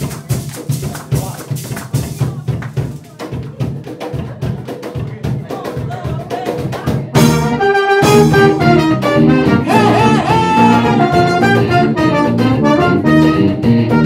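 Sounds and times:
drums and hand percussion: 0:00.0 - 0:14.0
brass section playing: 0:07.2 - 0:14.0.

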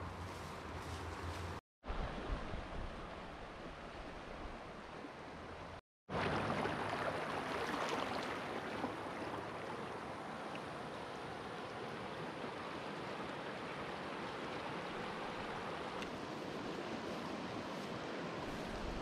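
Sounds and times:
river water flowing over rocks: 0:06.1 - 0:19.0.

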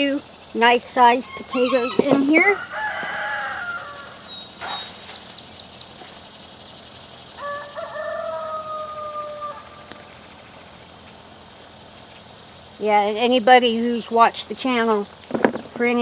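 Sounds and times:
insects droning: 0:00.0 - 0:16.0
rooster crowing: 0:01.2 - 0:04.5, 0:07.3 - 0:10.3.

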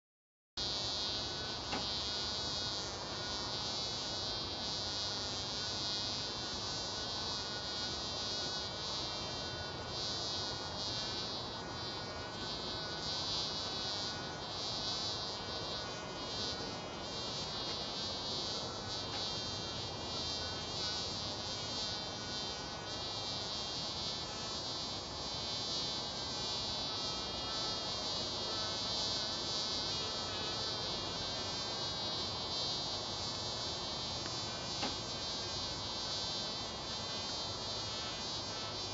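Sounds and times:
bees buzzing: 0:00.6 - 0:38.9.

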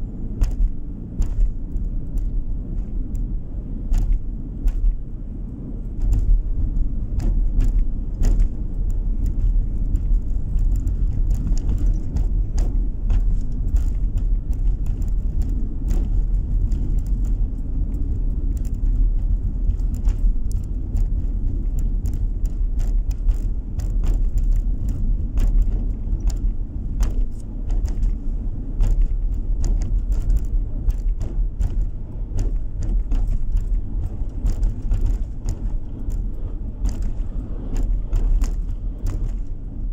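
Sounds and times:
tyre and engine rumble: 0:00.0 - 0:39.9.

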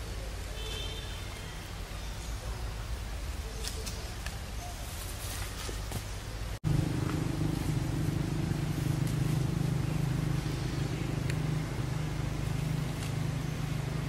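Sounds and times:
engine humming: 0:06.5 - 0:14.0.

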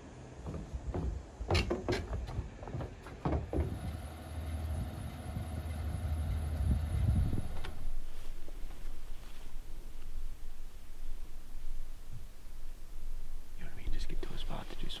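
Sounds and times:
sharp knocks: 0:00.6 - 0:04.0
engine low rumble: 0:02.2 - 0:15.0.

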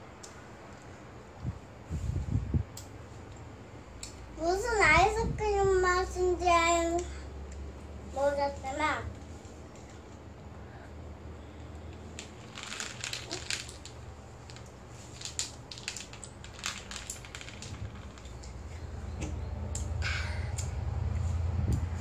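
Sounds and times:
jelly beans clicking on plastic plate: 0:11.8 - 0:18.6.

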